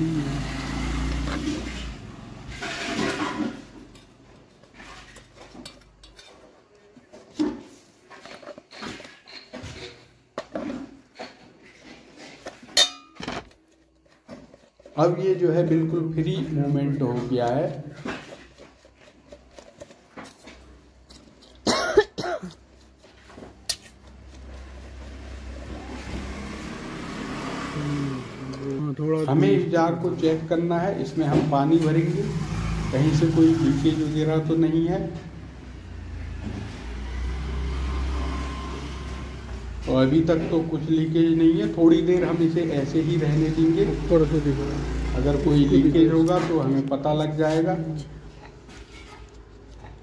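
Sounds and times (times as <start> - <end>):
metal clinks and scrapes in jar: 1.2 - 6.6, 8.1 - 21.7, 22.7 - 25.5
person coughing: 21.6 - 22.6.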